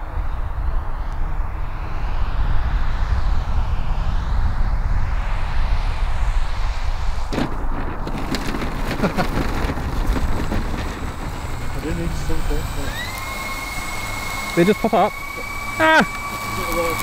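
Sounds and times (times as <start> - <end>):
model plane engine and propeller: 0.0 - 17.0
plane touching down knock: 7.2 - 13.2
landing gear rattling on grass: 7.3 - 17.0.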